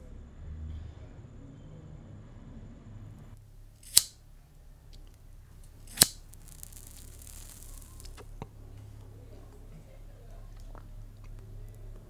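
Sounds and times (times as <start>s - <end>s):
cigarette lighter clicks: 3.8s - 4.2s, 5.9s - 8.2s
lighter flame hiss: 3.8s - 4.2s, 4.9s - 8.4s.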